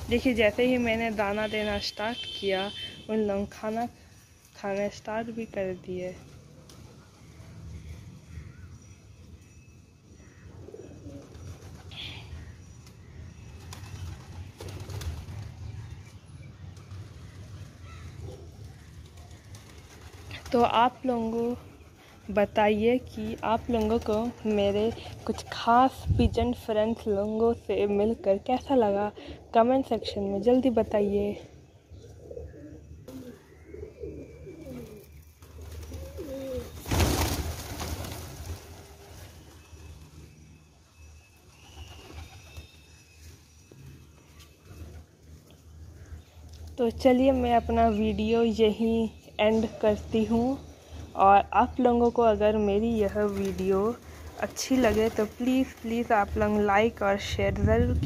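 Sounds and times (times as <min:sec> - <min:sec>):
pigeons cooing: 0:10.4 - 0:12.2, 0:32.0 - 0:37.3.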